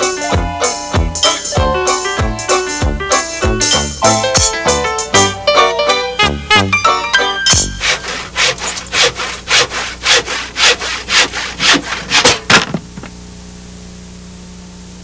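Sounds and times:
rhythmic rasping strokes: 0.0 - 5.3, 7.5 - 12.5
steady hum: 7.5 - 15.0.

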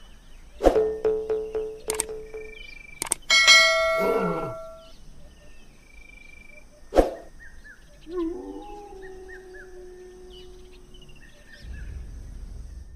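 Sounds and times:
faint bird chirps: 0.0 - 12.1
animal's long drawn-out call: 4.0 - 4.8.

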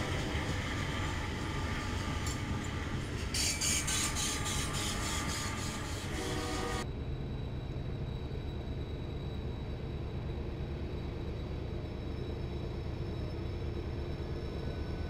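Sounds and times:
train wheels clicking over rail joints: 0.0 - 6.8
freight train rumbling: 0.0 - 15.0.

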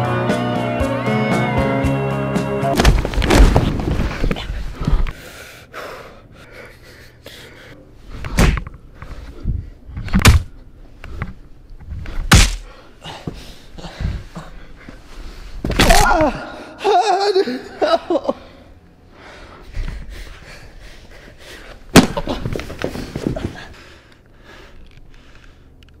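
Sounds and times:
heavy thuds on floor: 2.8 - 4.5.

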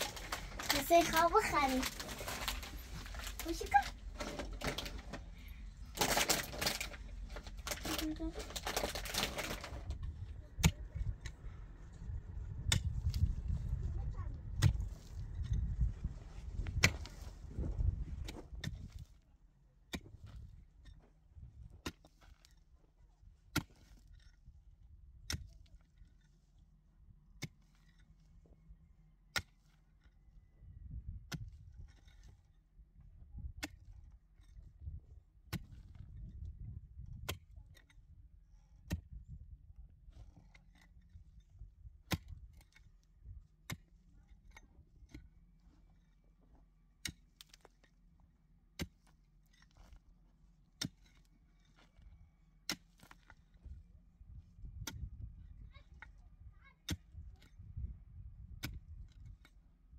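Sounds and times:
low uneven rumble: 0.0 - 19.1.

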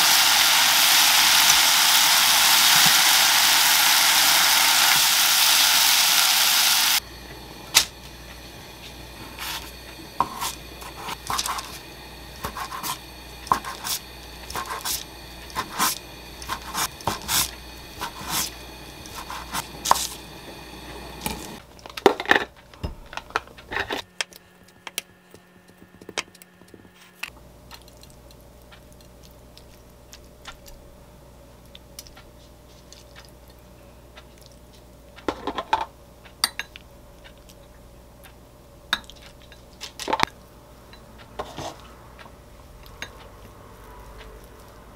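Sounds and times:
meat sizzling in a pan: 0.0 - 7.0, 9.4 - 21.6.

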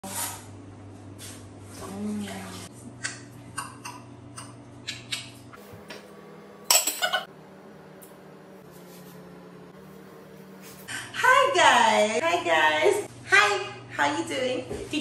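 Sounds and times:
pot and lid clattering: 6.7 - 7.3.

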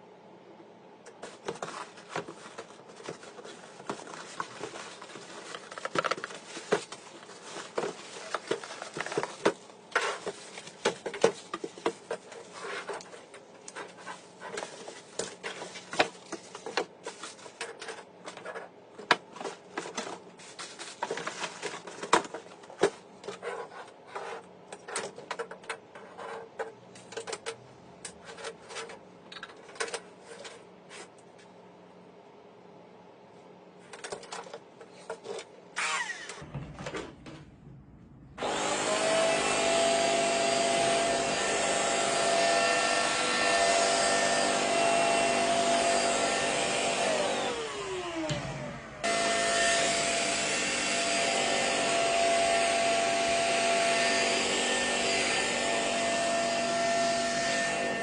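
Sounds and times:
cardboard packaging rustling: 1.2 - 23.8.

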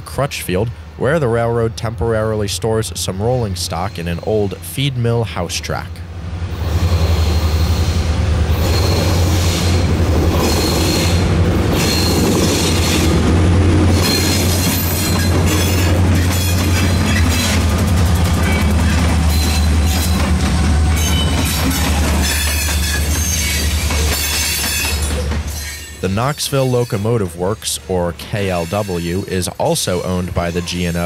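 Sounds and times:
diesel locomotive engines droning: 0.0 - 31.0
train wheels clicking over rail joints: 6.6 - 31.0
high squeal: 6.7 - 11.2, 18.4 - 27.6, 28.4 - 31.0.

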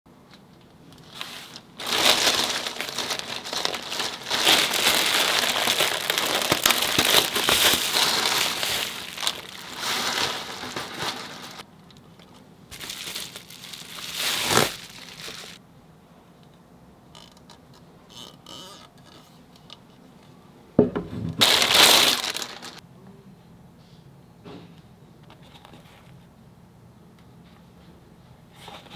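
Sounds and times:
plastic bag crinkling: 0.9 - 15.6, 21.4 - 22.8.

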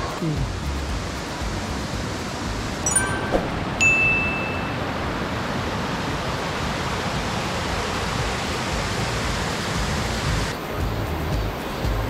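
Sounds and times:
stream rushing over rocks: 0.0 - 12.0
short high tone: 2.9 - 4.9.

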